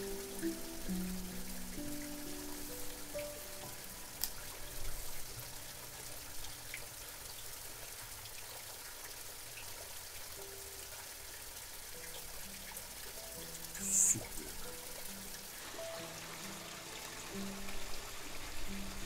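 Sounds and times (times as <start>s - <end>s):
soft music notes: 0.0s - 7.2s, 10.4s - 19.0s
running water hiss: 0.0s - 19.0s.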